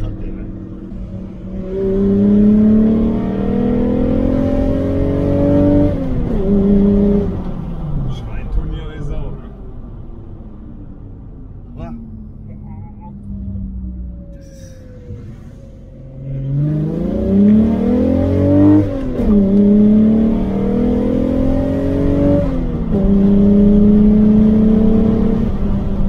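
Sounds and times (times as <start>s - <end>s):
car engine accelerating hard: 0.0s - 9.8s, 11.5s - 26.0s.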